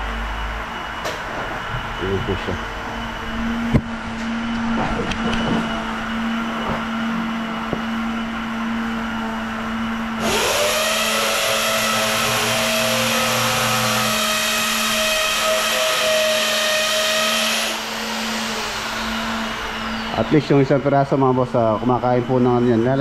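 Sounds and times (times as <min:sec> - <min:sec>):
steady low hum: 0:00.0 - 0:10.2, 0:17.6 - 0:23.0
electric drill motor whine: 0:00.0 - 0:23.0.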